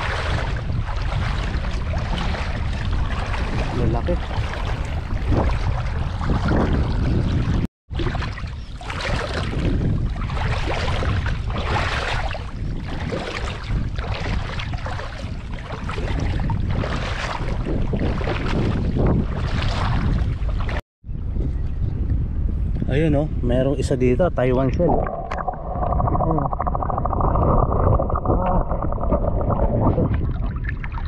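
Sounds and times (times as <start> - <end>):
river water splashing: 0.0 - 7.3, 8.0 - 20.8
wind on microphone: 0.0 - 31.0.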